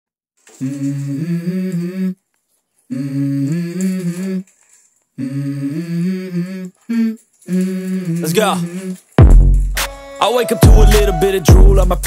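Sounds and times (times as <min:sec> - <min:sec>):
person humming a slow melody: 0:00.6 - 0:02.2, 0:02.9 - 0:04.6, 0:05.2 - 0:09.1.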